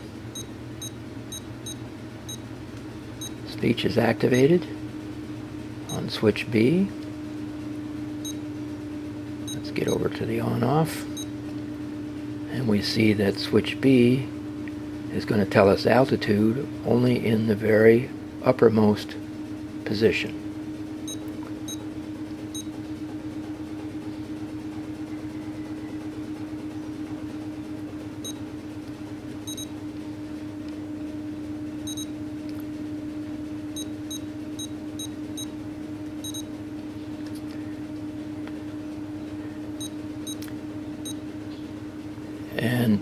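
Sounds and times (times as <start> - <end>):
steady low hum: 0.0 - 43.0
short high key beeps: 29.5 - 29.7, 31.9 - 32.1, 36.2 - 36.5.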